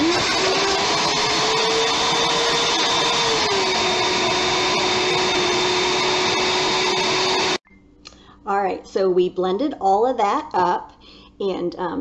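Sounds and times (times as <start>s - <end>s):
blender motor whining: 0.0s - 7.6s.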